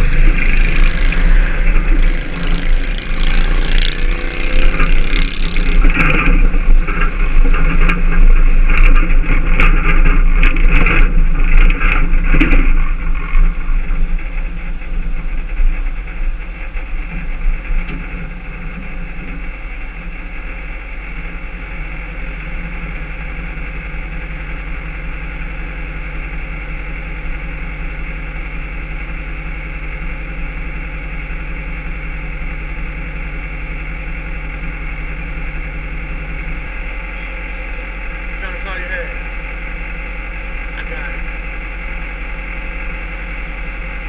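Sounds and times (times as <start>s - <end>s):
truck engine idling: 0.0s - 44.0s.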